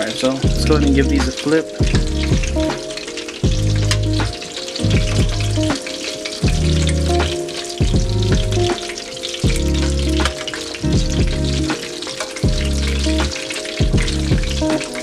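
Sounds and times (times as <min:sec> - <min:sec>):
background music with bass: 0:00.0 - 0:15.0
fish frying in hot oil: 0:00.0 - 0:15.0.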